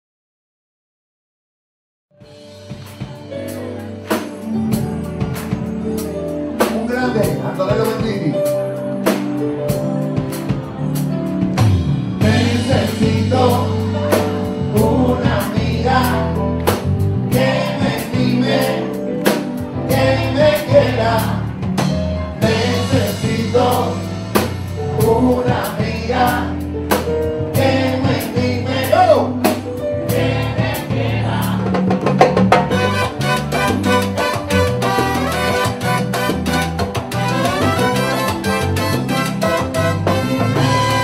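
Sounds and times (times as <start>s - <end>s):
live salsa band playing: 2.2s - 41.0s
lead and chorus vocals: 12.2s - 21.8s, 22.4s - 32.0s.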